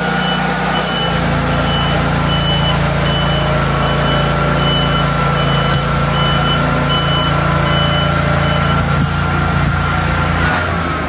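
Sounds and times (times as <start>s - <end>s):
sawmill engine running: 0.0s - 11.0s
repeating electronic beep: 0.2s - 8.9s.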